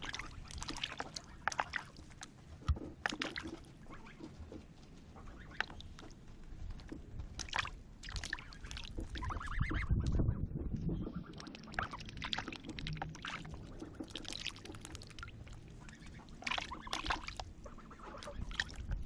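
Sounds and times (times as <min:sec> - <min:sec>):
water splashing in basin: 0:00.0 - 0:03.7, 0:06.8 - 0:09.8, 0:11.1 - 0:19.0.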